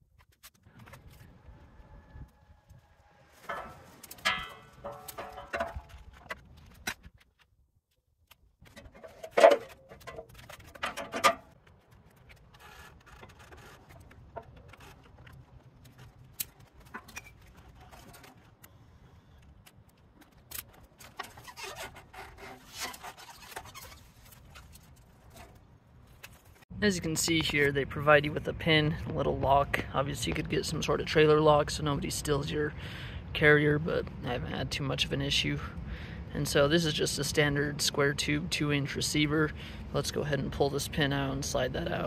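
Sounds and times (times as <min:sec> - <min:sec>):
rustling: 0:00.0 - 0:26.6
loud clanks: 0:03.4 - 0:06.3.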